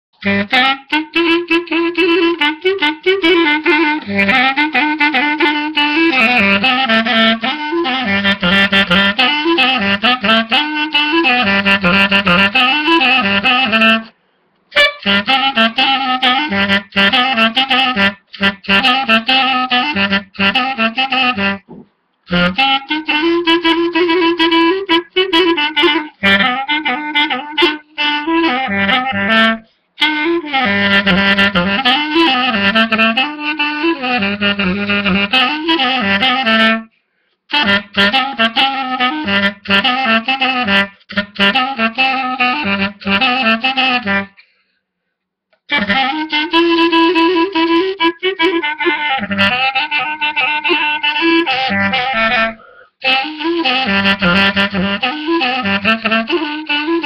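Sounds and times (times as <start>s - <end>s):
clarinet folk dance tune: 0.2s - 14.1s, 14.7s - 44.6s, 45.6s - 57.0s.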